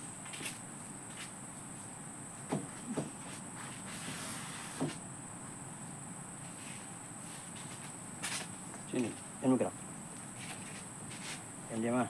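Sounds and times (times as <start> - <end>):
high insect drone: 0.0 - 12.0
leaves rustling: 10.0 - 12.0.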